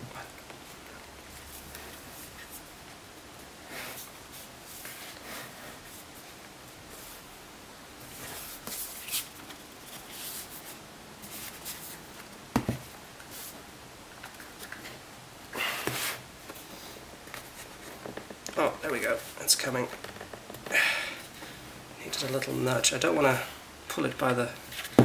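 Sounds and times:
hands rubbing on cardboard: 8.1s - 9.3s, 9.9s - 12.2s.

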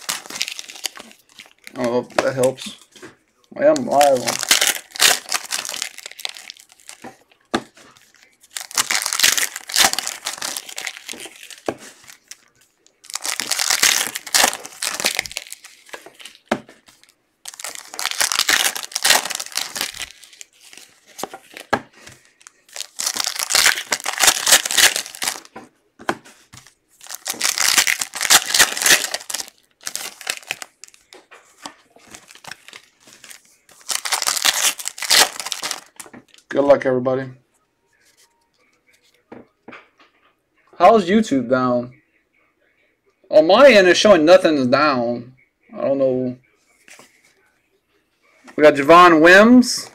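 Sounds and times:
wrappers torn and crinkled: 0.0s - 2.6s, 3.7s - 7.1s, 7.9s - 21.7s, 22.3s - 25.5s, 27.0s - 31.2s, 32.0s - 36.4s.

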